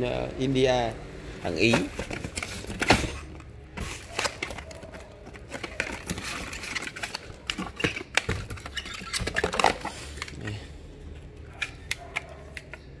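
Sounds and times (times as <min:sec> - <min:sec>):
packages rustling in carton: 0:01.5 - 0:10.4.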